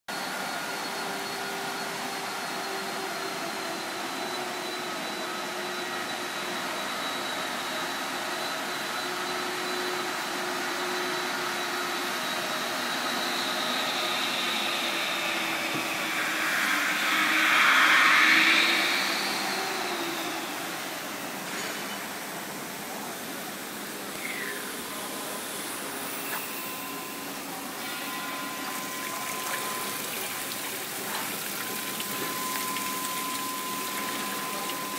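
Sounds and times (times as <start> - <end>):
faint high whining tones: 0.1 - 34.9
industrial machinery drone: 0.1 - 34.9
loud hissing rush: 13.8 - 21.4.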